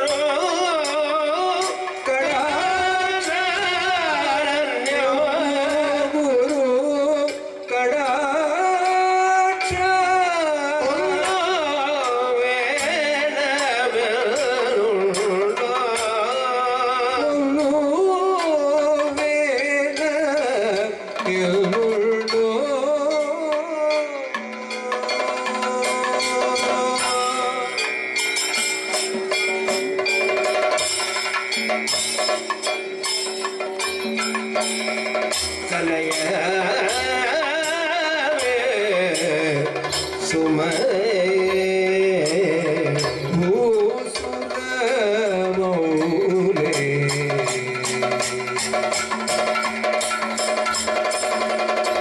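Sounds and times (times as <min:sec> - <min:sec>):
person singing ornamented melody: 0:00.0 - 0:29.0, 0:35.2 - 0:49.0
drumming: 0:00.0 - 0:52.0
cymbal strikes: 0:24.2 - 0:37.8.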